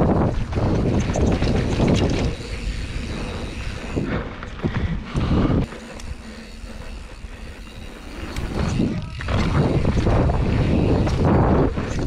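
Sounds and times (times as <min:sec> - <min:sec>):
bike clicks and rattles: 0:00.0 - 0:12.0
wind on microphone: 0:08.3 - 0:12.0.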